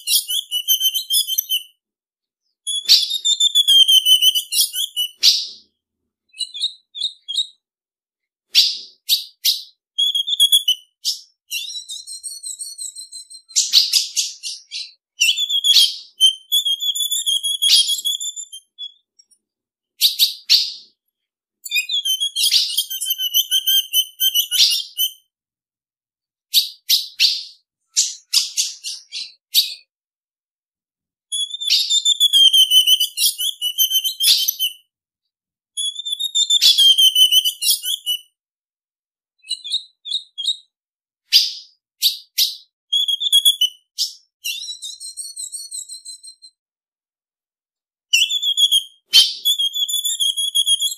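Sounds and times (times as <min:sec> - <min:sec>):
bird wavering whistles: 0:00.0 - 0:01.7, 0:02.7 - 0:05.6, 0:08.5 - 0:19.0, 0:21.7 - 0:25.2, 0:31.3 - 0:34.8, 0:35.8 - 0:38.3, 0:41.3 - 0:46.6, 0:48.1 - 0:50.9.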